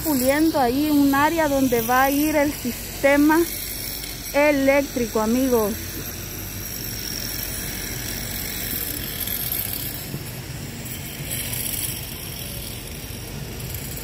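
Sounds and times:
distant traffic hum: 0.0 - 14.0.

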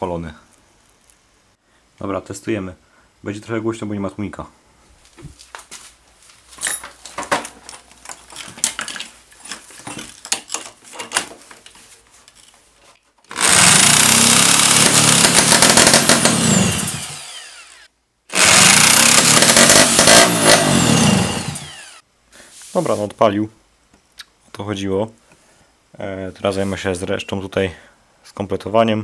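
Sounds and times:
engine cranked by power drill: 13.3 - 22.0.

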